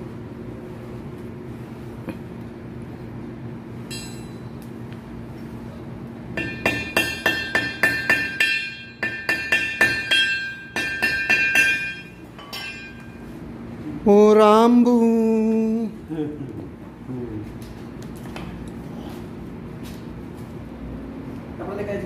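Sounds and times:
hammer striking metal: 3.9s - 4.5s, 6.4s - 13.2s.

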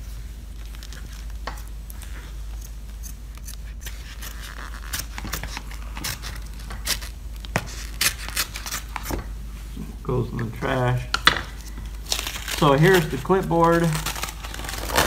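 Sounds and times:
fabric peeling off with crackling snaps: 11.9s - 15.0s.

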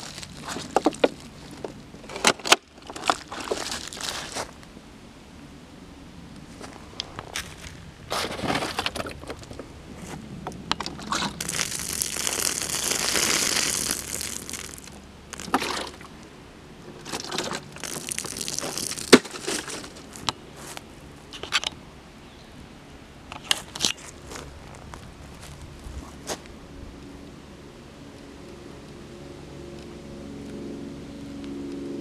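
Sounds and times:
plastic crinkling: 0.0s - 4.6s, 10.9s - 16.0s, 17.0s - 20.3s
leaves rustling: 0.0s - 5.0s, 5.7s - 21.5s.

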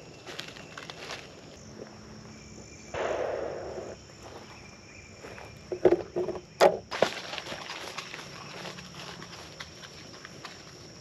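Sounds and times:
footsteps through dry leaves: 0.0s - 1.6s, 6.9s - 10.9s
sharp knocks and crunches: 5.7s - 10.7s.

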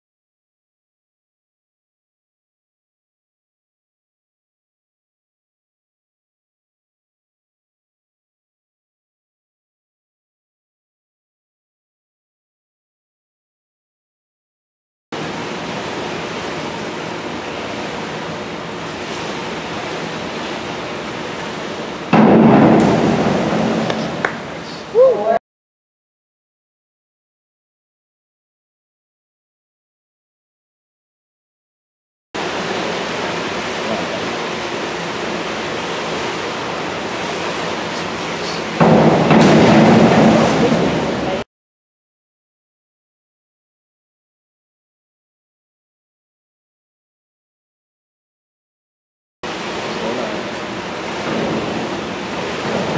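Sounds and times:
swimming pool hall hiss: 15.2s - 25.0s, 32.4s - 41.4s, 49.5s - 52.9s.

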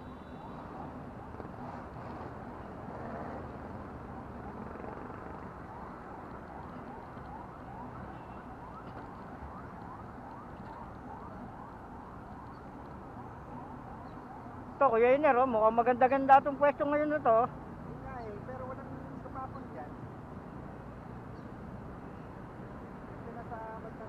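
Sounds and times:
faint siren yelping: 0.0s - 1.7s, 4.0s - 15.4s.

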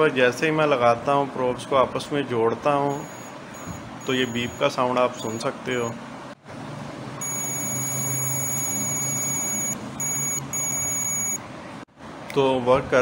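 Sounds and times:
high-pitched continuity beeps: 2.9s - 5.4s, 7.2s - 11.4s.

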